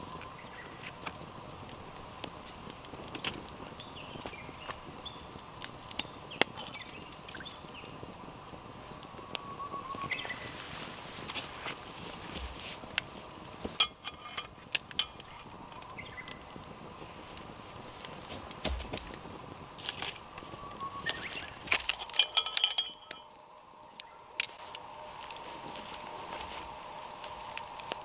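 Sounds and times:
campfire crackling: 0.0 - 28.0
metal clinking on cast iron skillet: 13.8 - 16.1, 21.8 - 23.4.

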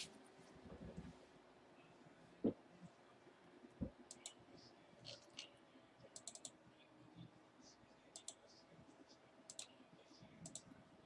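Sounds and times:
computer keyboard and mouse clicks: 4.1 - 4.4, 6.1 - 6.6, 8.2 - 8.4, 9.5 - 9.7, 10.4 - 10.7.

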